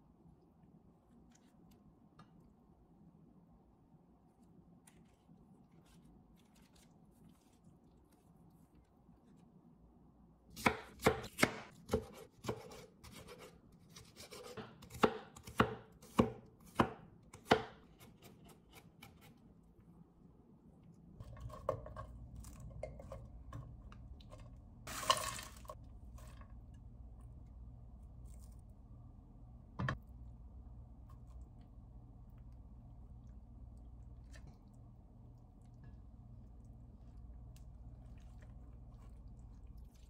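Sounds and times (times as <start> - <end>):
knife chopping on wooden board: 10.5 - 19.3
steady low hum: 25.6 - 40.0.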